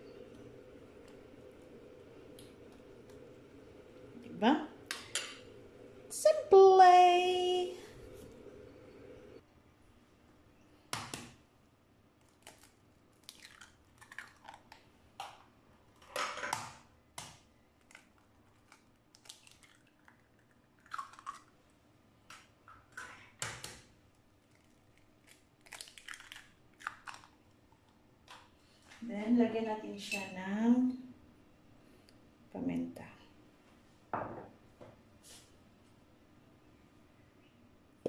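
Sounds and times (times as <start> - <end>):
eggshells cracking: 12.2 - 14.9, 17.8 - 21.6, 24.4 - 27.4.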